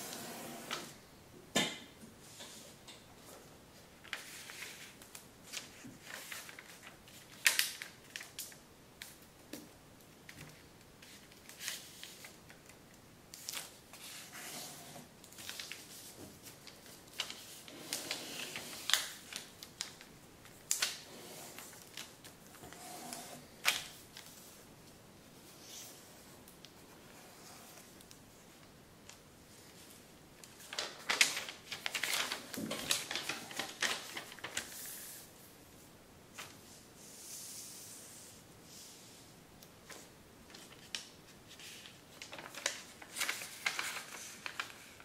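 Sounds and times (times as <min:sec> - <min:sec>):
paper rustling and crackling: 0:04.0 - 0:09.2, 0:10.3 - 0:24.6, 0:25.5 - 0:35.3, 0:39.8 - 0:45.0.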